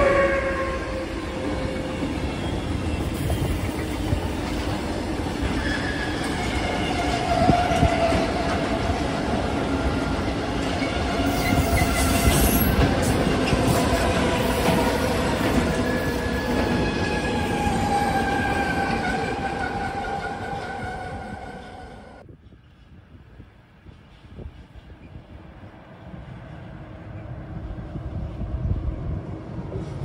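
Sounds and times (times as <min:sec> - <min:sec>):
train wheels rumbling on rails: 0:00.0 - 0:30.0.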